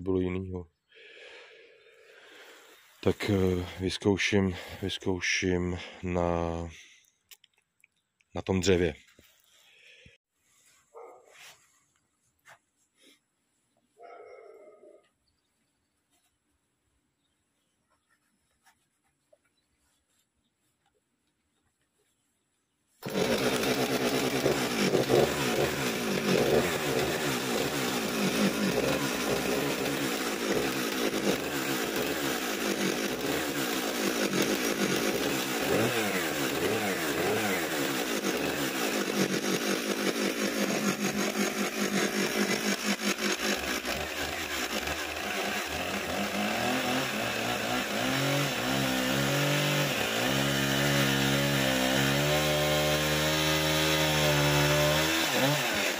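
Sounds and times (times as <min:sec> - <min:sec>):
chainsaw revving: 0:02.1 - 0:03.8, 0:23.0 - 0:55.9
chainsaw cutting log: 0:23.0 - 0:55.9.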